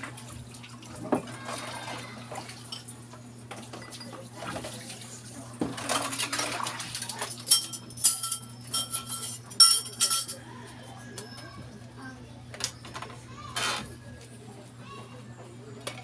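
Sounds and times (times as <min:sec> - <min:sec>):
ceramic plates clinking: 0:07.4 - 0:10.4.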